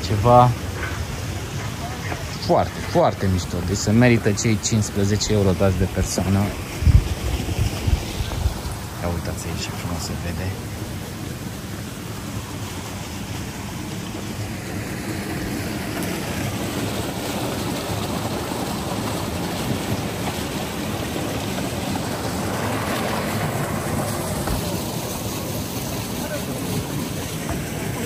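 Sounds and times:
steady rushing noise: 0.0s - 28.0s.

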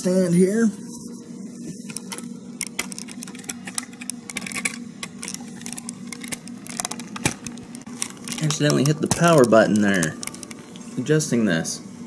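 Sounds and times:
handling clicks and knocks: 2.6s - 10.6s.

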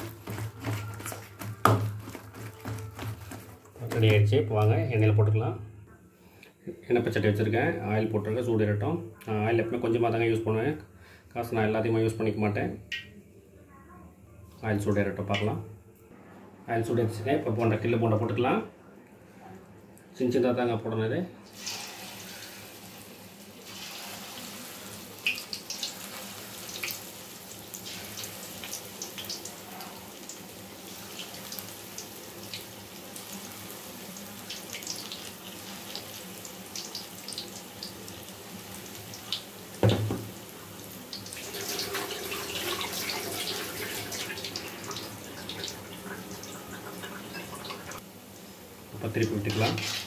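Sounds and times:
hot oil sizzling: 21.5s - 50.0s
thump: 39.8s - 40.3s.

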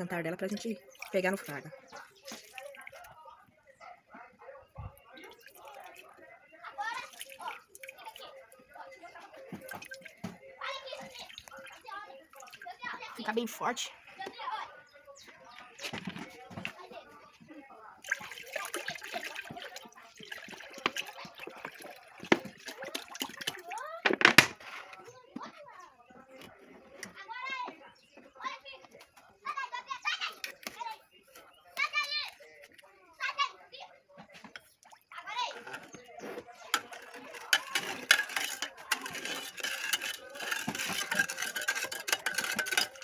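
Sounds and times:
liquid splashing into container: 2.2s - 3.1s, 7.0s - 8.2s, 18.0s - 23.8s
utensils clinking against dishes: 35.5s - 43.0s.

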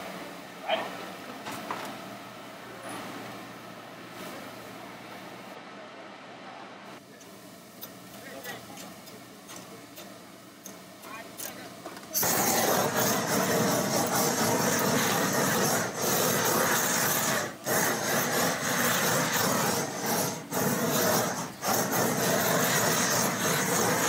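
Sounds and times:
blowtorch flame hissing: 7.0s - 24.0s.

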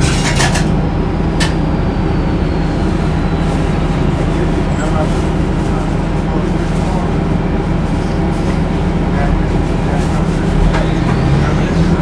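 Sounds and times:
bus engine drone: 0.0s - 12.0s
rising whine: 0.1s - 5.6s.

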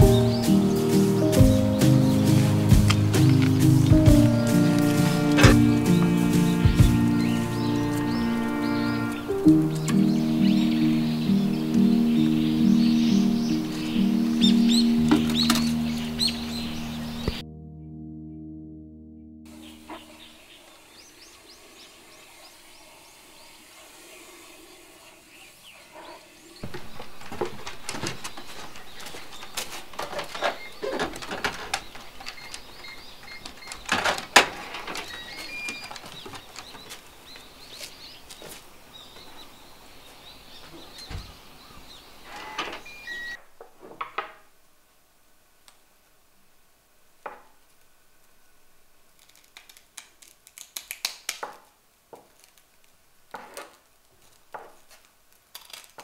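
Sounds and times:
bird chirps: 0.0s - 18.5s, 19.5s - 43.4s
knocks and clatter of handling: 26.6s - 37.0s.

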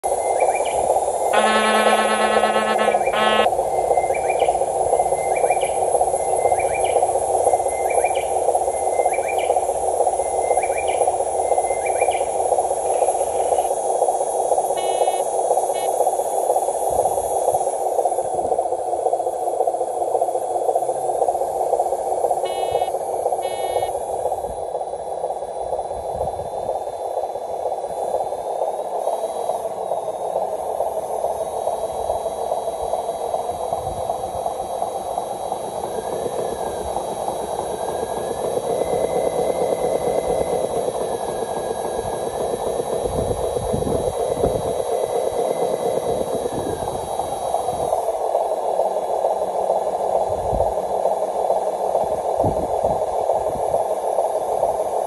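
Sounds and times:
electric motor and gearbox whining: 1.4s - 3.5s
quick beeps: 1.4s - 3.5s, 14.8s - 15.2s, 22.5s - 23.9s.

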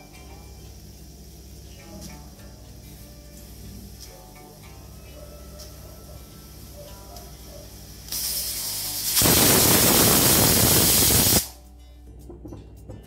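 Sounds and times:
pressure cooker whistling: 8.2s - 11.5s.

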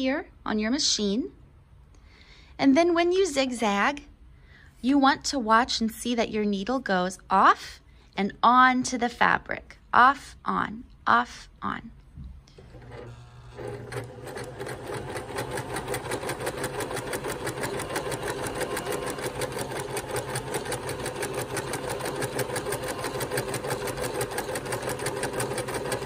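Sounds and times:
sewing machine motor hum: 12.5s - 26.0s
sewing machine needle clatter: 12.6s - 26.0s.

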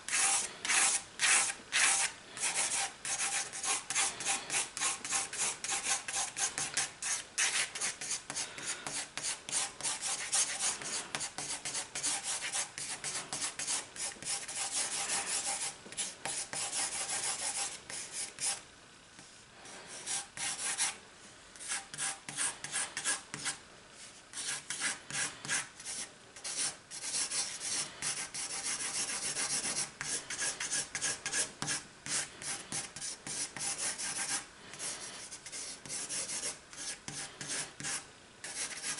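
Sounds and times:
pencil scribbling on paper: 0.1s - 18.6s, 24.3s - 38.9s.

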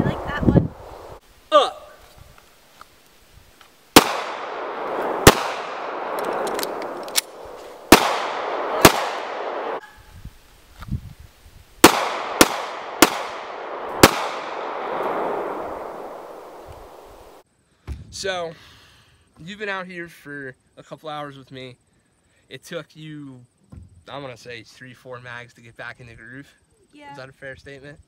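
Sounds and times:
pistol shots with echo: 4.0s - 9.8s, 11.8s - 16.4s.

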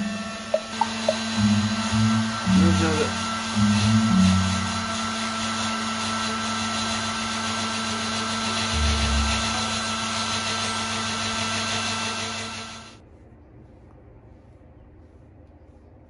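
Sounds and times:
hair dryer blowing: 0.0s - 13.0s
low bump: 8.8s - 9.9s.

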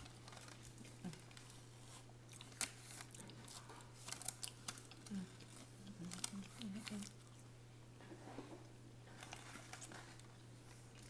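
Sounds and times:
sharp clicks and soft crinkles: 0.0s - 7.4s
chewing food: 0.0s - 7.5s
steady low hum: 0.0s - 11.0s.

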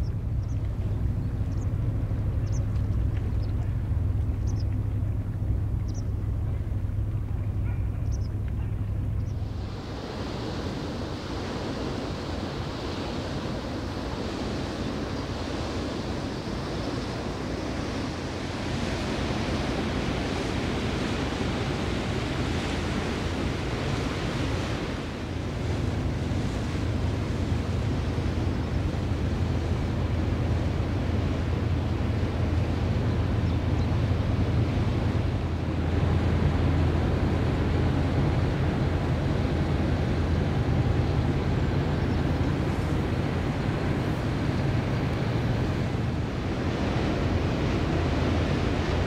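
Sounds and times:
ship engine drone: 0.0s - 49.0s
wind on microphone: 0.0s - 49.0s.

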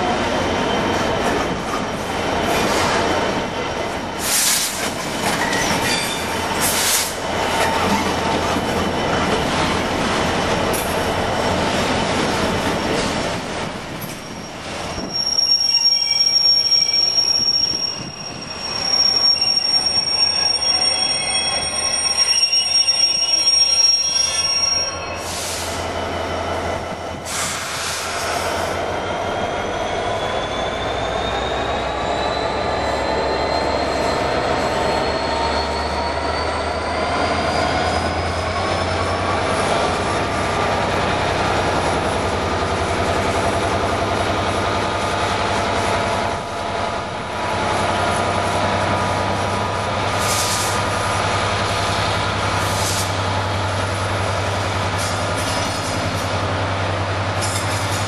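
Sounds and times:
freight train wagons rumbling: 0.0s - 58.0s
high wheel squeal: 14.1s - 26.7s, 27.3s - 40.2s.

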